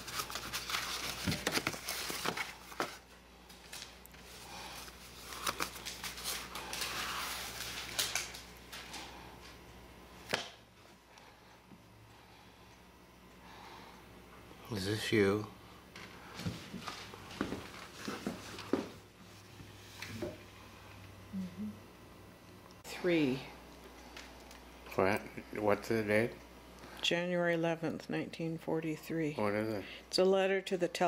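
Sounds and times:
paper rustling: 0.0s - 9.1s
faint steady hum: 0.0s - 31.0s.

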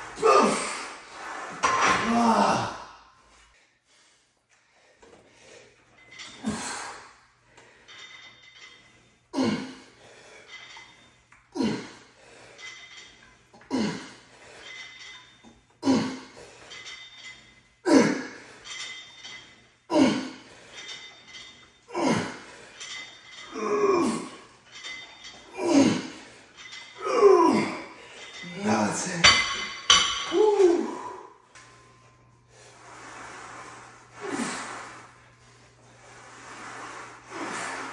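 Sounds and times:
man grunting and exhaling hard: 0.2s - 1.0s, 1.8s - 3.0s, 9.4s - 9.9s, 11.6s - 12.0s, 13.7s - 14.2s, 15.8s - 16.4s, 17.9s - 18.4s, 19.9s - 20.4s, 21.9s - 22.6s, 23.5s - 24.4s, 25.5s - 26.2s, 27.0s - 27.9s, 30.3s - 31.3s.

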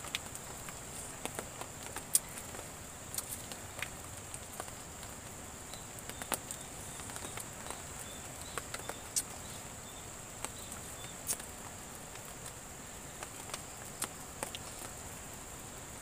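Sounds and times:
sharp ticks and pops: 0.0s - 15.6s.

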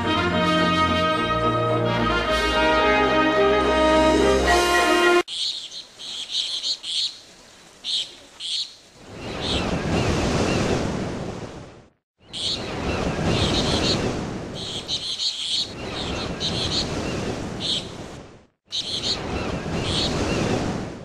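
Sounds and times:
waves washing in and out: 2.6s - 21.0s
small birds chirping: 5.3s - 9.8s, 12.2s - 18.0s, 18.7s - 20.5s.

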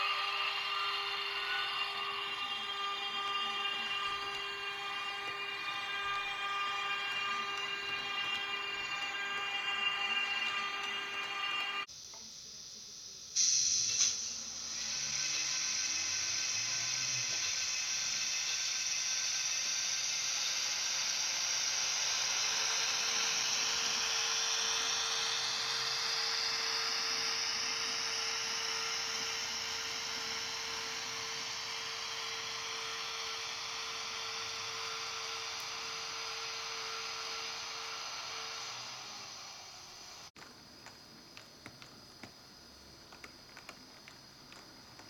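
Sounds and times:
steady hum: 0.0s - 13.2s
steady hiss: 0.0s - 45.0s.

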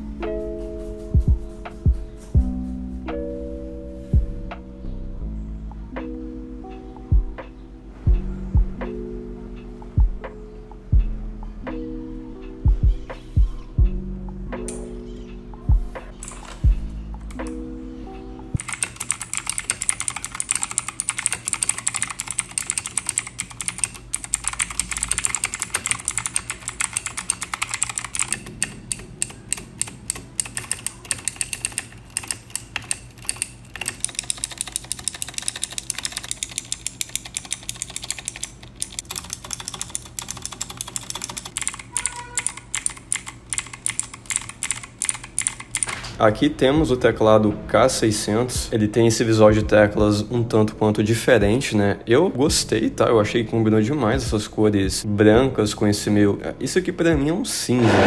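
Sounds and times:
mechanical keyboard typing: 16.2s - 16.6s, 18.6s - 46.0s.

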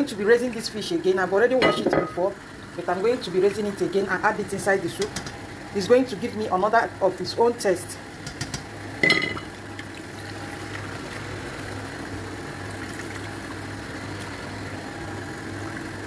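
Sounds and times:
tap water running into bowl: 8.2s - 11.9s.

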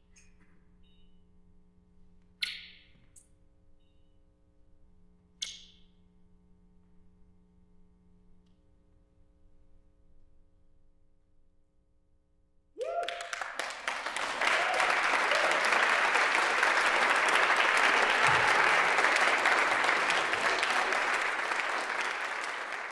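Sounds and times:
audience cheering: 12.8s - 22.9s
audience clapping: 12.8s - 22.9s.

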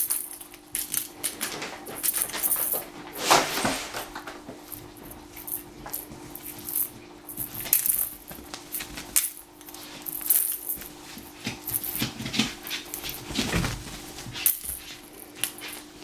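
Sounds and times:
paws clicking and scratching: 10.3s - 15.9s.

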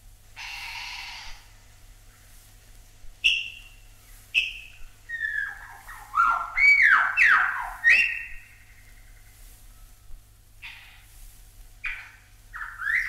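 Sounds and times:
bird whistling song: 3.2s - 9.0s, 11.8s - 13.0s.

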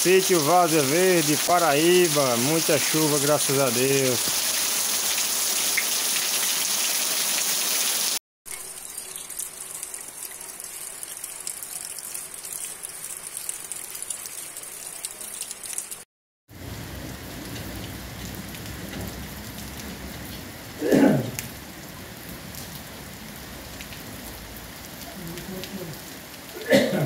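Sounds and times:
rain falling on grass and puddles: 0.0s - 27.0s
raindrop ticks: 8.5s - 16.0s.

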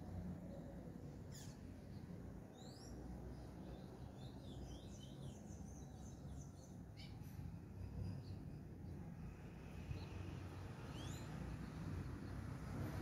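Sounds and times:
small birds chirping: 0.4s - 12.6s.

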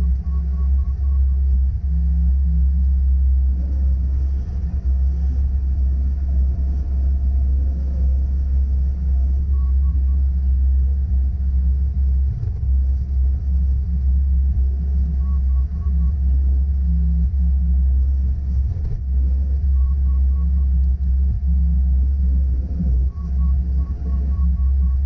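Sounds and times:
diesel engine rumbling: 0.0s - 25.0s.

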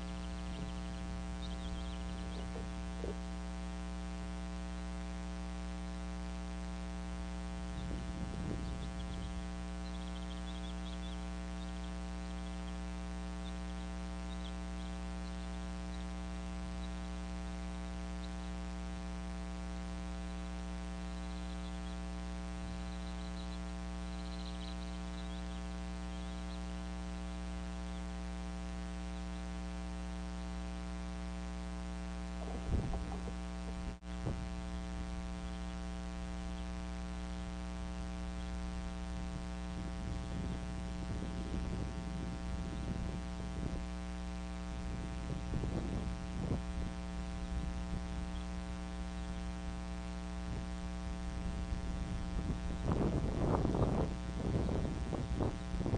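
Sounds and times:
birds rustling on nest: 0.0s - 4.0s, 27.1s - 41.4s
electrical mains hum: 0.0s - 55.9s.

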